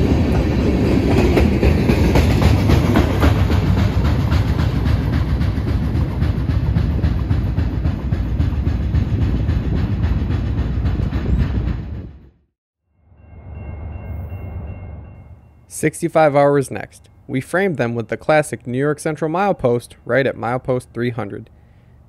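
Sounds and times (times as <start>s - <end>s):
steel wheels clacking over rails: 0.0s - 12.2s
freight train cars rumbling past: 0.0s - 12.4s, 13.0s - 22.0s.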